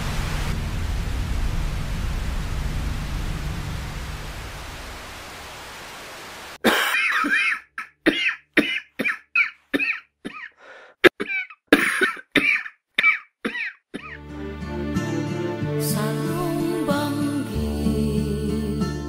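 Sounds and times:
steady hiss: 0.0s - 6.6s
person coughing: 6.6s - 14.2s.

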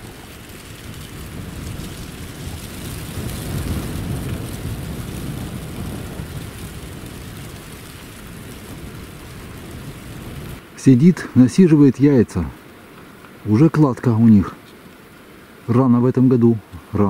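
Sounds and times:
wind rumbling on microphone: 0.0s - 10.7s.

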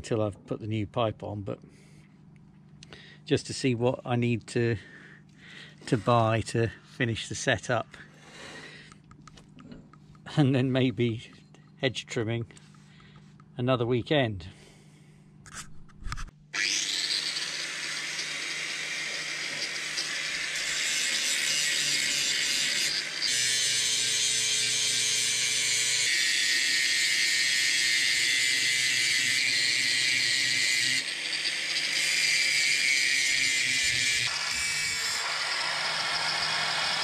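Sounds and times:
grinder grinding metal teeth: 15.5s - 37.0s.

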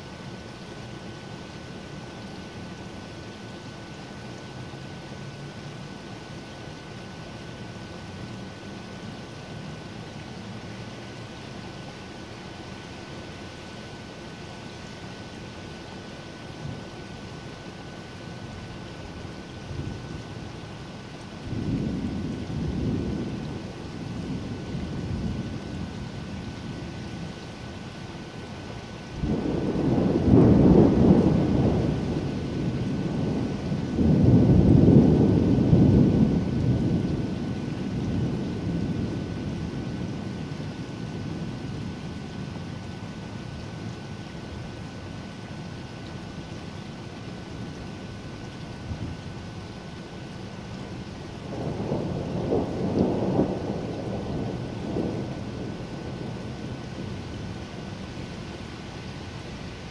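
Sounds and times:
rain hissing: 0.0s - 59.9s
thunder rumbling: 21.4s - 27.3s, 29.1s - 43.3s, 50.7s - 59.9s.

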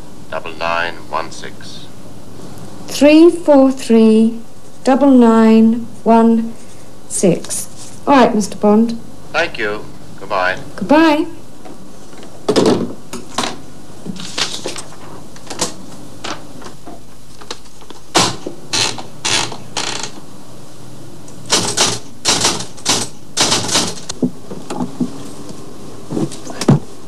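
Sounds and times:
typewriter keys clacking: 21.5s - 24.1s.

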